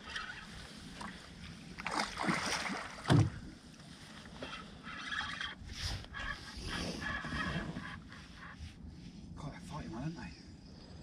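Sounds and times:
fish splashing in water: 1.8 - 3.4.

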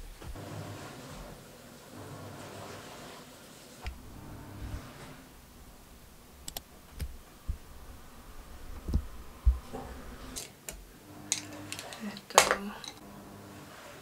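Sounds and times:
washing machine running: 0.0 - 14.0
low thumps: 3.9 - 10.4.

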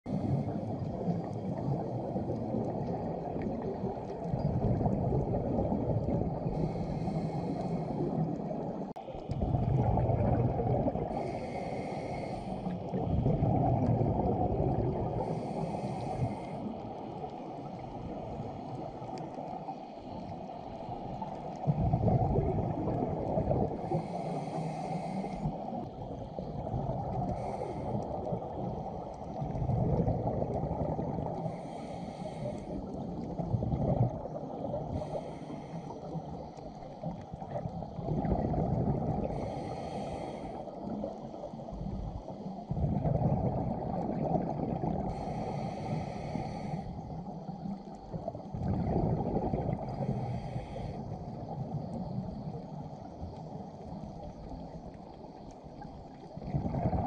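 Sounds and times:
exhaled bubbles rushing: 0.1 - 11.7, 12.6 - 24.1, 25.6 - 31.6, 32.8 - 35.3, 36.0 - 39.7, 40.8 - 45.2, 47.8 - 50.5, 55.7 - 57.0
regulator inhale hiss: 6.4 - 8.8, 11.0 - 13.4, 15.0 - 21.7, 23.7 - 29.4, 31.2 - 33.5, 34.6 - 37.9, 39.2 - 42.7, 45.0 - 48.2, 49.8 - 56.2.

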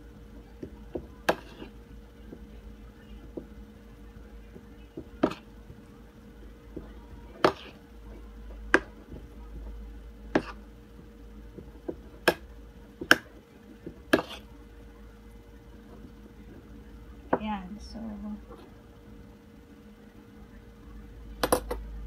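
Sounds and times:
soft scraping in bowl: 1.3 - 1.8.

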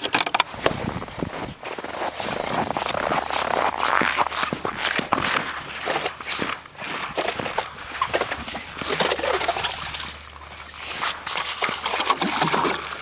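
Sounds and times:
ice auger scraping and crunching ice: 0.0 - 13.0.

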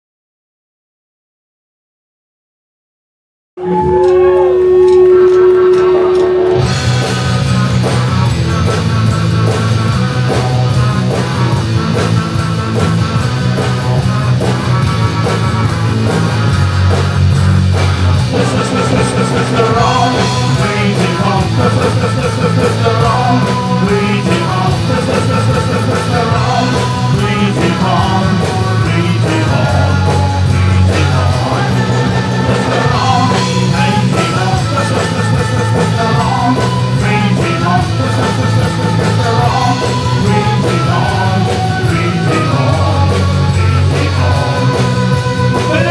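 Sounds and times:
bass guitar: 3.6 - 45.9
drums: 3.6 - 45.9
electric guitar: 3.6 - 45.9
man singing: 18.2 - 45.9.

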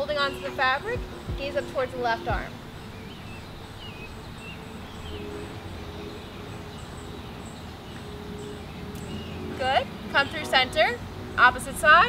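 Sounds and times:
bird chirps: 0.0 - 11.8.

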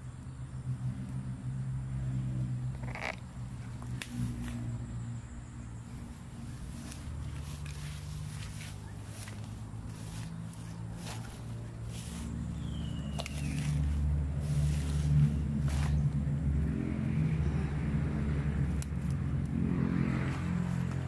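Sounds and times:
steady low hum: 0.0 - 21.0
fern leaves brushing and rustling: 5.8 - 16.3.

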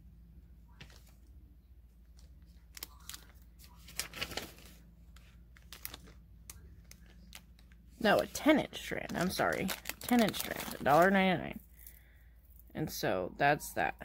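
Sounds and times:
steady low hum: 0.0 - 14.0
plastic bag of beads crinkling: 2.2 - 12.7.

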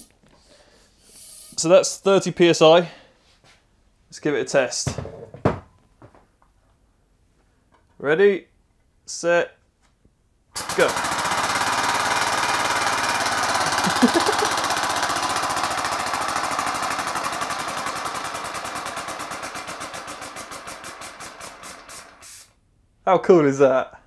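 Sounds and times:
air engine chugging puffs: 10.6 - 22.5.

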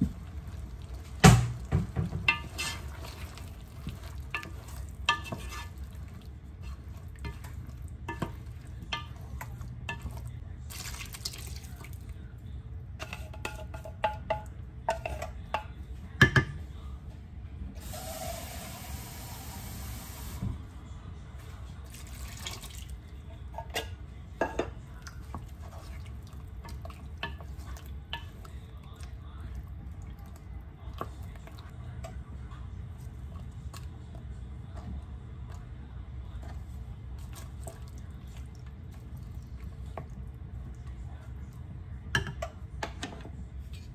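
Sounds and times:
wooden spoon knocking on pot: 13.0 - 16.6
steady low hum: 22.8 - 43.9.

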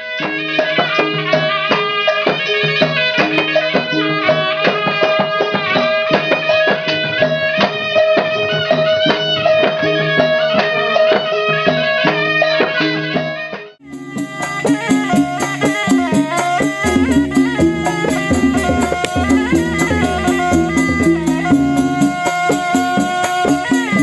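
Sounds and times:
quick drum strikes: 13.8 - 24.0
steady held tone: 13.8 - 24.0
wavering melody: 13.8 - 24.0.

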